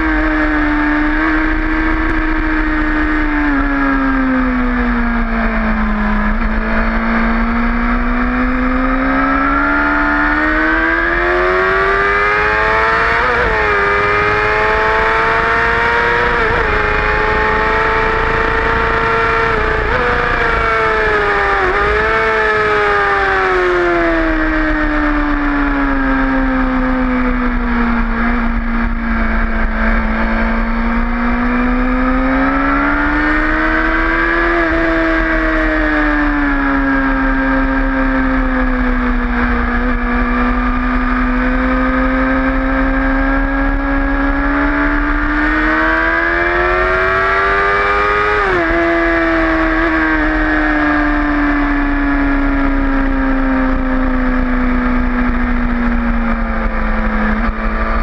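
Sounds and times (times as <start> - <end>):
motorcycle engine revving high: 0.0 - 58.0.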